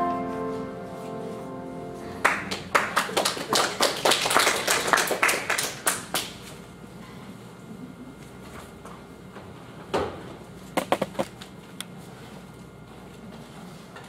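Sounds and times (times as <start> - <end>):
piano chord: 0.0 - 2.8
congregation clapping: 2.2 - 6.4.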